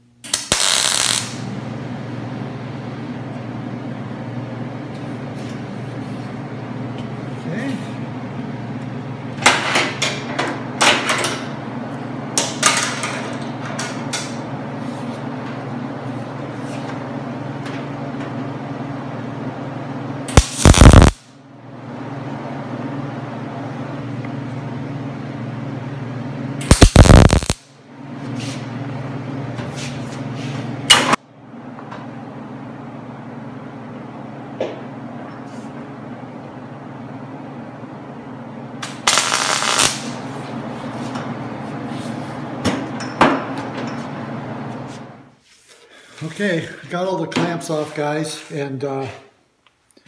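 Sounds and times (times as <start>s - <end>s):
steady low hum: 0.0s - 50.0s
welder crackling bursts: 0.1s - 1.5s, 20.3s - 21.3s, 26.6s - 27.7s, 38.8s - 40.2s.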